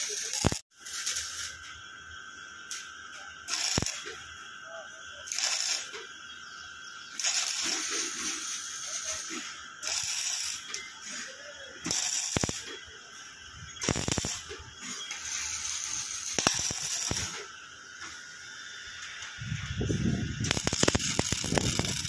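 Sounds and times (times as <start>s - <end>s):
welding arc crackling and hissing: 0.0s - 22.0s
sharp pops: 11.8s - 12.8s, 13.8s - 15.4s, 16.2s - 18.2s, 20.4s - 22.0s.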